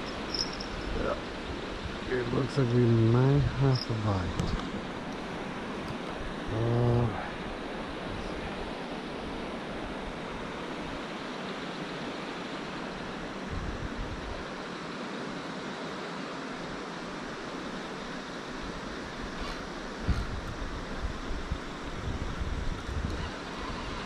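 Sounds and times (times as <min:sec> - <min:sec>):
man humming: 0:06.5 - 0:07.3
wind on microphone: 0:13.4 - 0:14.5, 0:18.8 - 0:24.0.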